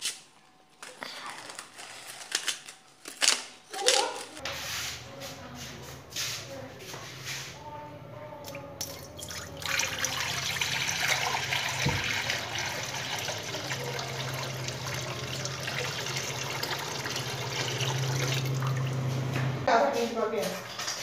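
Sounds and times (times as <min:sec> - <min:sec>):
water pouring into metal pan: 0:08.8 - 0:18.9.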